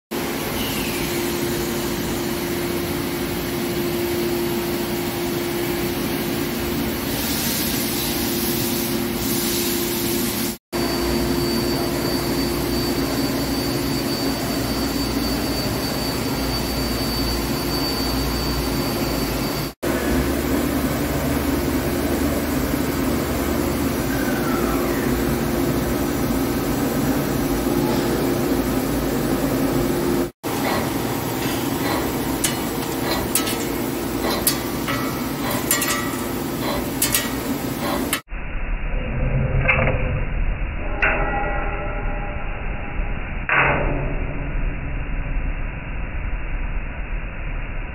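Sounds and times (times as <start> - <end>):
held machine tone: 10.8 - 20.3.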